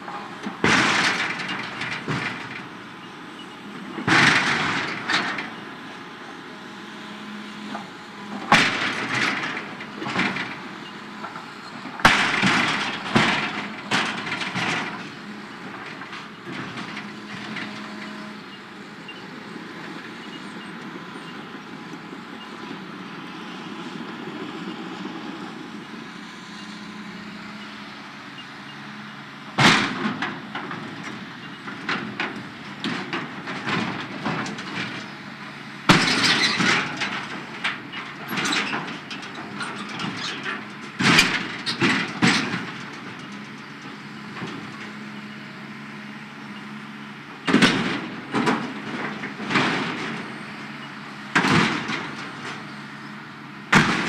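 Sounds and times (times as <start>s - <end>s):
excavator diesel engine running: 0.0s - 54.0s
metal crunching and clattering: 53.7s - 54.0s.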